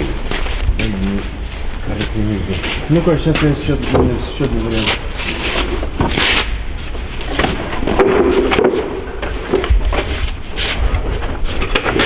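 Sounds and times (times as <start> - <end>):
wooden panels knocking and scraping: 7.2 - 10.3.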